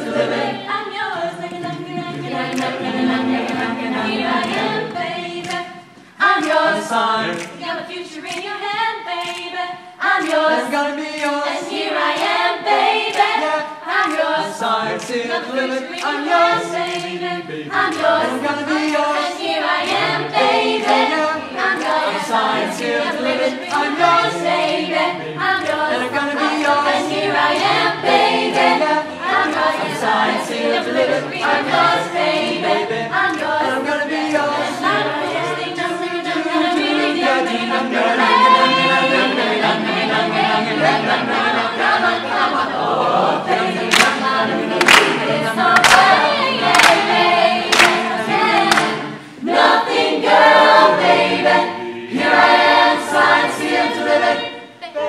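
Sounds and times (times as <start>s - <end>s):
ensemble singing a cappella: 0.0s - 55.0s
sharp percussive clicks: 6.3s - 9.6s, 14.0s - 17.3s, 43.9s - 46.2s, 47.7s - 49.0s.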